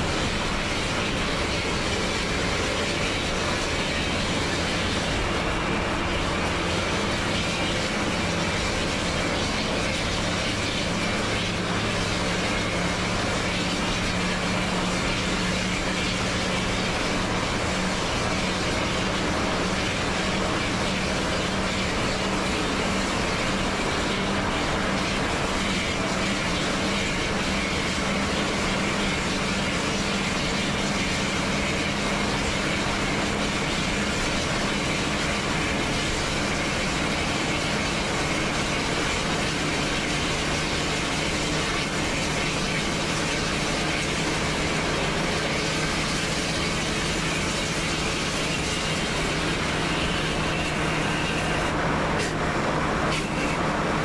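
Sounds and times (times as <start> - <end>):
bus engine drone: 0.0 - 54.0
road noise: 0.0 - 54.0.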